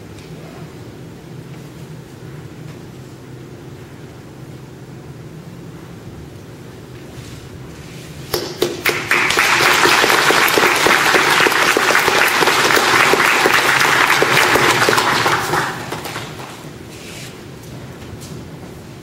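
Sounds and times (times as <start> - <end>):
audience applauding: 8.4 - 16.8.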